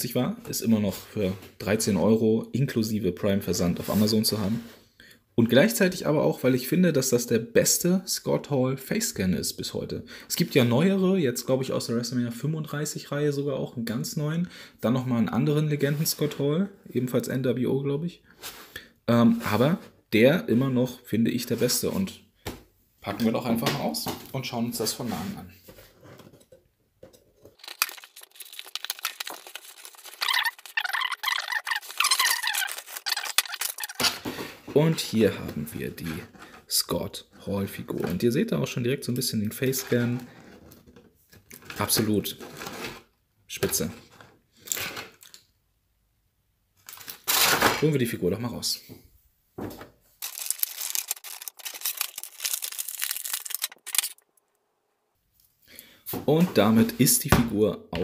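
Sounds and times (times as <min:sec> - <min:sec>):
plastic and cardboard crinkling: 0:27.3 - 0:34.6, 0:49.6 - 0:54.5.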